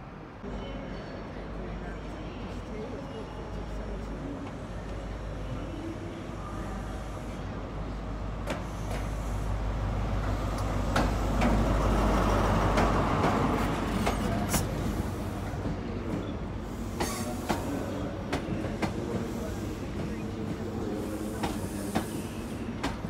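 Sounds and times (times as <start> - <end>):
diesel locomotive rumbling: 6.2 - 23.0
train wheels clicking over track joints: 10.2 - 14.9.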